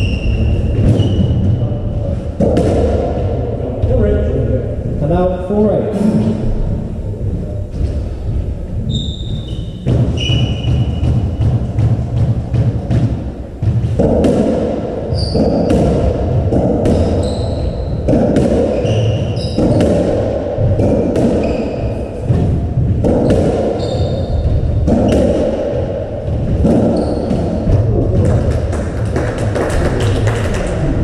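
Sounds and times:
shoes squeaking on wooden floor: 0.0s - 1.5s, 8.8s - 11.8s, 15.1s - 16.0s, 16.9s - 17.9s, 18.6s - 19.9s, 21.3s - 22.3s, 23.2s - 25.3s, 26.7s - 27.6s
ball hits echoing: 2.3s - 4.0s, 9.8s - 31.0s.

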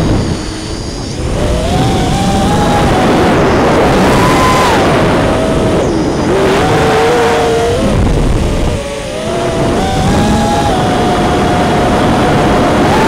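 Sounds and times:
drone motors whining: 0.0s - 13.0s
rushing air noise: 0.0s - 13.0s.

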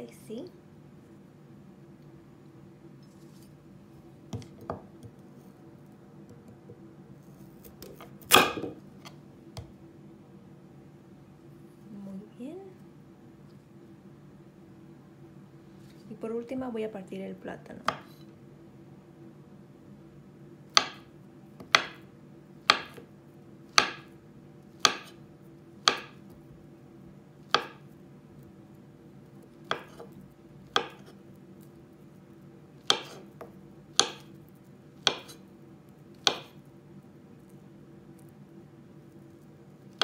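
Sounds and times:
knife slicing banana: 24.8s - 25.2s, 29.6s - 31.2s, 32.8s - 33.4s, 35.0s - 35.4s, 36.2s - 36.6s.

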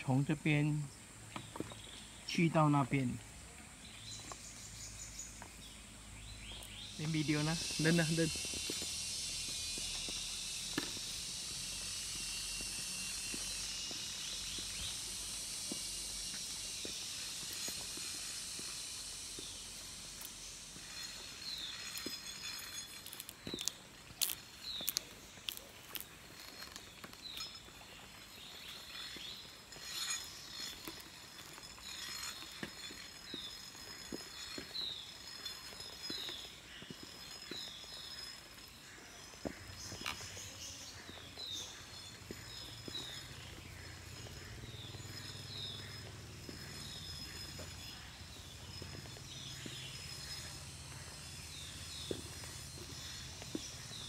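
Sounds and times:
high insect drone: 0.0s - 54.0s
steady high hiss: 0.0s - 54.0s
footsteps on wooden planks: 21.7s - 54.0s.

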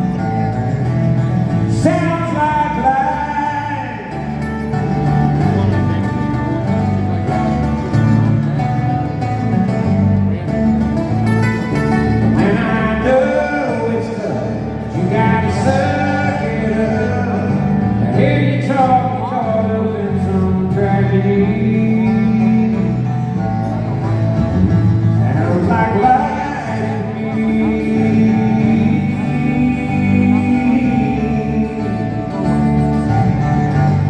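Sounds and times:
acoustic guitars: 0.0s - 34.0s
steady bass: 0.0s - 34.0s
man singing: 1.5s - 5.1s, 12.0s - 23.9s, 25.0s - 34.0s.

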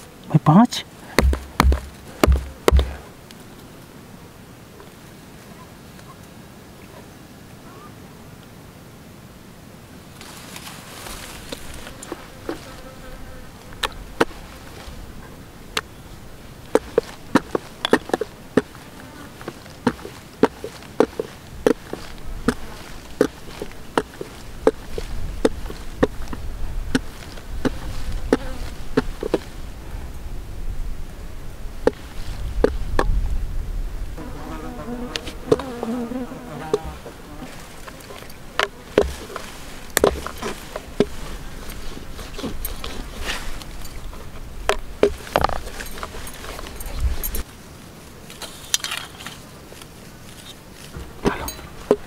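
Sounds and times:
insect buzzing: 1.2s - 3.1s, 11.0s - 15.5s, 27.0s - 29.5s, 34.2s - 43.1s.

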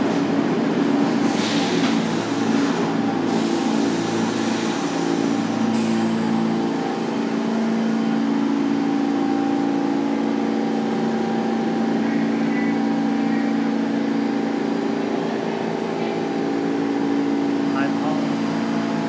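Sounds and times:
subway car humming: 0.0s - 19.0s.

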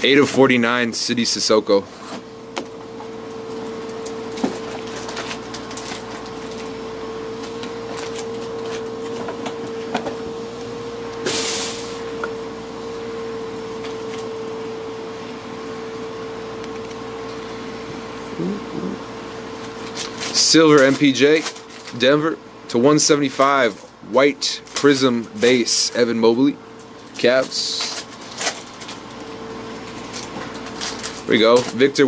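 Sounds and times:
steady hum: 0.0s - 32.0s
foil wrapper rustling: 4.0s - 6.8s, 7.4s - 9.2s, 19.6s - 22.2s, 23.2s - 26.1s, 27.0s - 32.0s.

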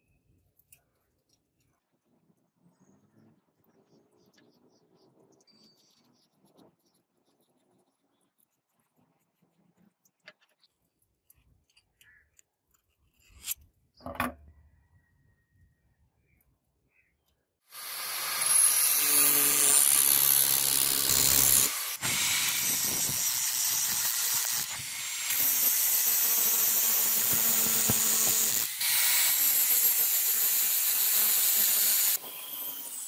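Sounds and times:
angle grinder grinding metal: 17.7s - 33.0s.

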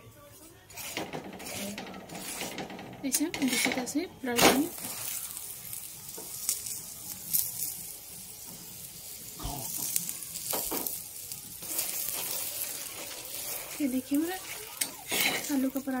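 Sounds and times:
spatula knocking on pan: 1.0s - 3.9s
flatbread sizzling in oil: 4.5s - 16.0s.

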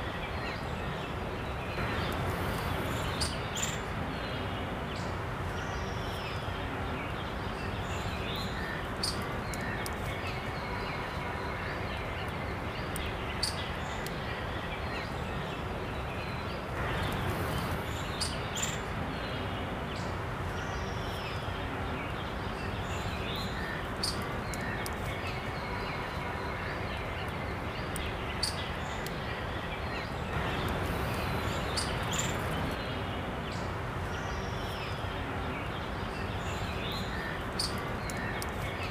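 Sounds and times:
outdoor ambient noise: 0.0s - 38.9s.

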